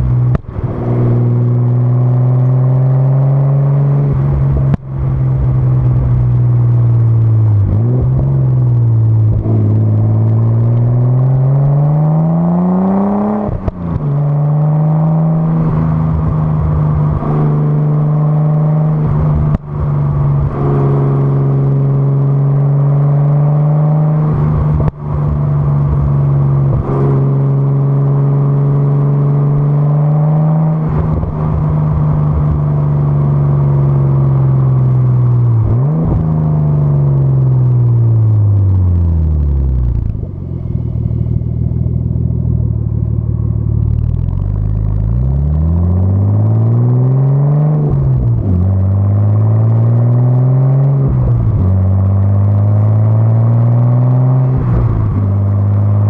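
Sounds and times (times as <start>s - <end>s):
car exhaust note: 0.0s - 56.0s.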